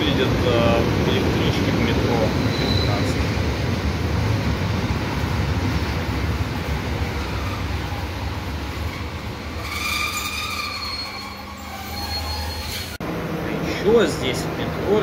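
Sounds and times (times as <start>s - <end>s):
train rumbling: 0.0s - 15.0s
train squealing: 1.4s - 3.4s, 7.0s - 13.0s.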